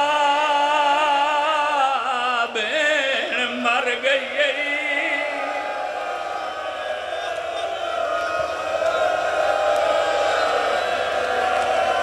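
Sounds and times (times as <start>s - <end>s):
man chanting a lament: 0.0s - 5.9s.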